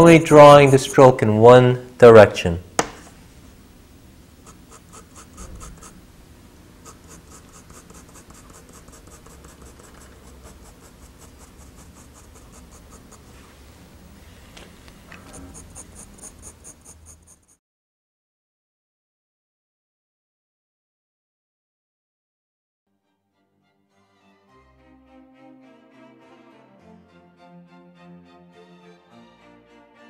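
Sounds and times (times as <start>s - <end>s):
pencil hatching on paper: 4.4s - 6.0s, 6.8s - 13.4s, 15.2s - 17.6s.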